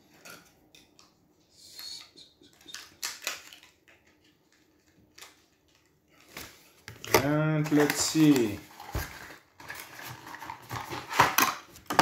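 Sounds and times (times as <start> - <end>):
plastic tray crinkling: 5.1 - 12.0.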